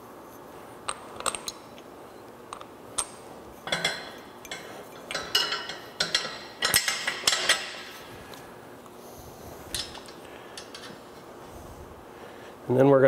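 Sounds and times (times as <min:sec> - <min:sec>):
metal hardware clinking: 0:02.5 - 0:08.0, 0:09.7 - 0:11.0.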